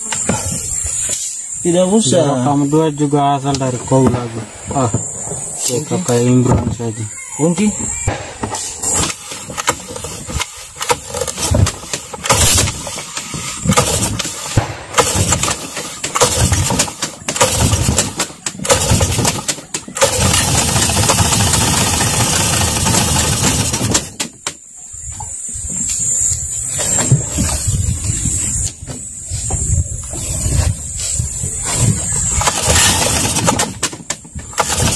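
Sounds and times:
outboard motor cranking and running: 0:08.8 - 0:24.4, 0:31.7 - 0:34.9.

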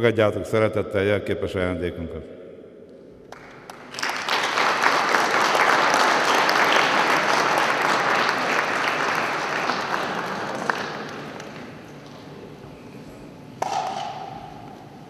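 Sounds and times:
audience applauding: 0:03.3 - 0:11.9.

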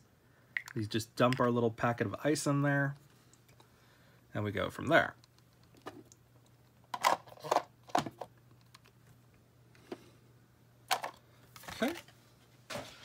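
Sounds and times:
plastic toy parts clicking and rattling: 0:06.9 - 0:08.9.

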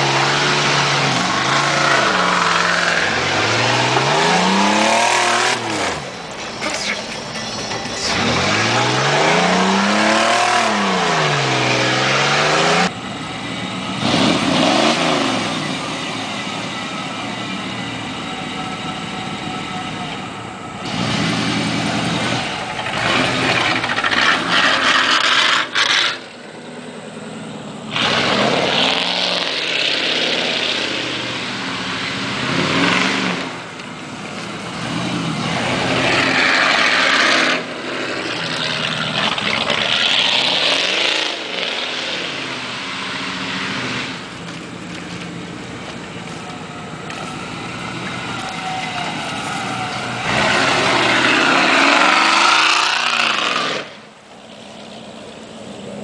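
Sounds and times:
engine revving hard: 0:00.0 - 0:06.1, 0:08.0 - 0:12.9, 0:14.0 - 0:15.9, 0:20.8 - 0:26.2, 0:27.9 - 0:33.6, 0:34.8 - 0:44.3, 0:49.8 - 0:54.1.

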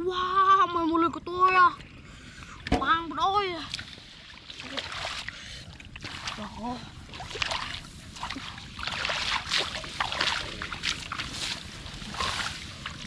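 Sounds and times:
hands splashing in muddy water: 0:06.0 - 0:13.0.

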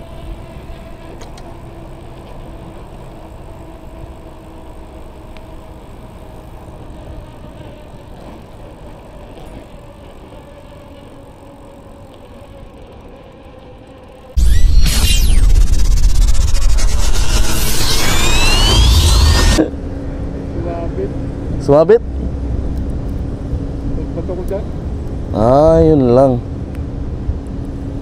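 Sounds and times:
bicycle tyre noise on pavement: 0:00.0 - 0:14.4.

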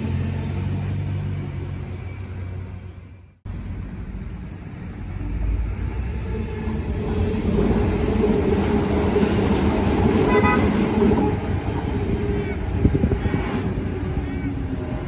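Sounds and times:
electric train rumble: 0:00.0 - 0:15.0.

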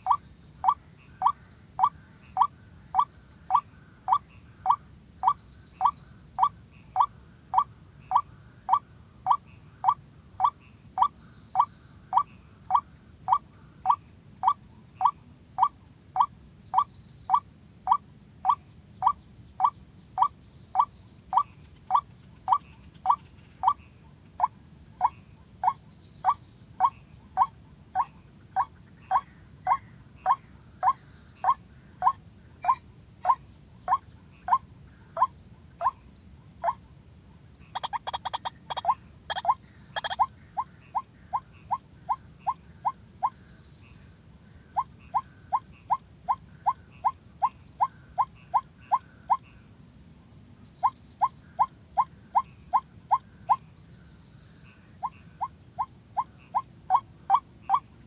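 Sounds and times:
waterhen calling: 0:37.8 - 0:40.3.

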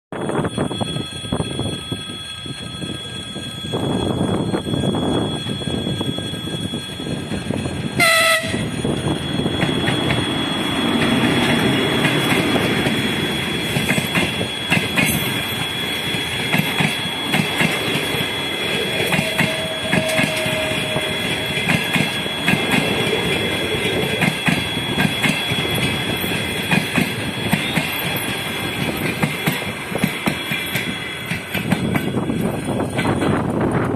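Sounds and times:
diesel locomotive engine: 0:00.1 - 0:33.9
train wheels clattering over rail joints: 0:09.6 - 0:33.9.

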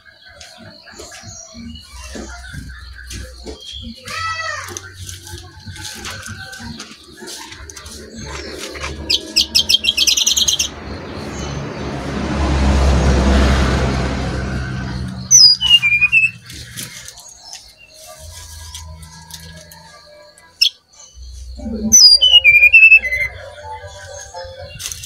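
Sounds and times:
rush of noise: 0:08.0 - 0:16.4
bird singing high notes: 0:14.9 - 0:25.0.

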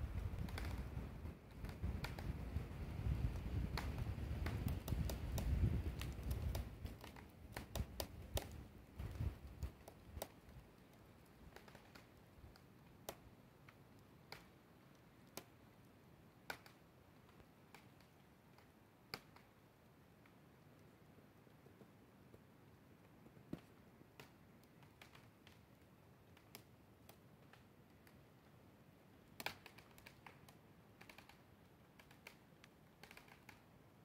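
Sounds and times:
wind rumble on microphone: 0:00.0 - 0:10.2.

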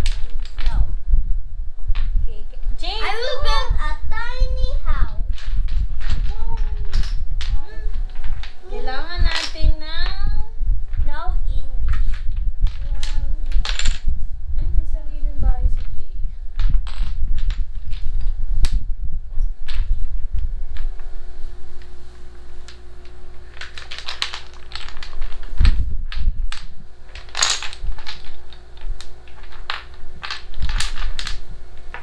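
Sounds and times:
wooden blocks clacking: 0:00.0 - 0:00.9, 0:05.3 - 0:10.3, 0:11.8 - 0:14.1, 0:16.6 - 0:18.8, 0:19.6 - 0:32.0.

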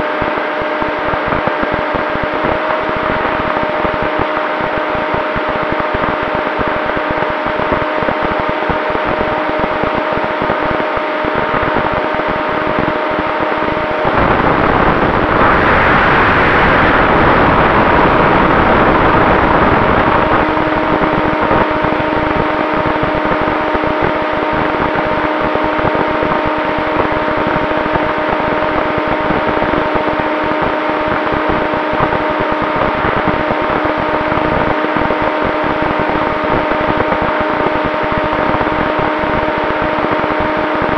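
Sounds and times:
electric motor and propeller whine: 0:00.0 - 0:40.9
rushing noise: 0:09.0 - 0:40.9.

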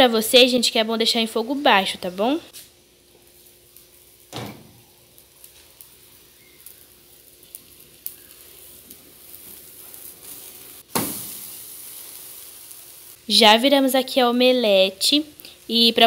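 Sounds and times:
omelette sizzling in a frying pan: 0:00.1 - 0:16.0
burst of omelette turned over: 0:02.6 - 0:13.2.

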